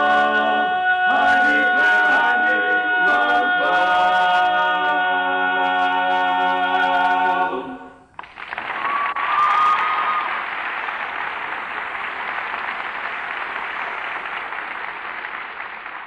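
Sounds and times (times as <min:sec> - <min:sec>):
male quartet singing a cappella: 0:00.0 - 0:08.0
applause: 0:08.2 - 0:16.0.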